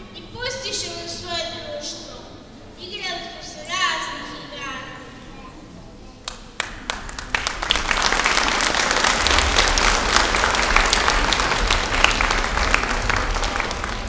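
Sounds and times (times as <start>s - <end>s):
audience applauding: 6.3s - 14.0s.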